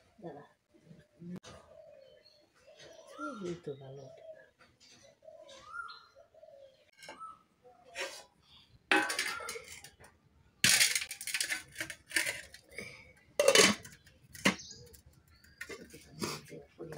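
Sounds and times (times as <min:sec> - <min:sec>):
metal utensils scraping a bowl: 0:07.9 - 0:10.0, 0:10.6 - 0:16.5.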